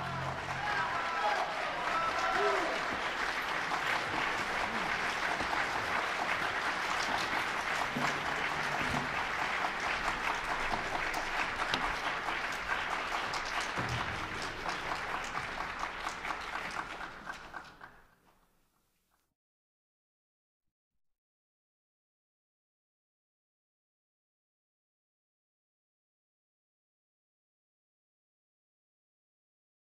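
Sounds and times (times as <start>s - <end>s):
audience applauding: 0.0s - 18.2s.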